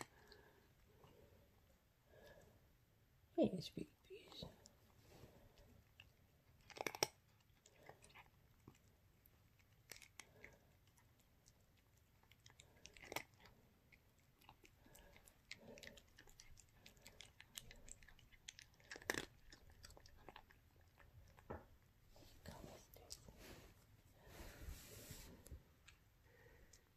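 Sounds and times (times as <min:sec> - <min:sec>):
cat crunching dry kibble: 0:04.3 - 0:23.4.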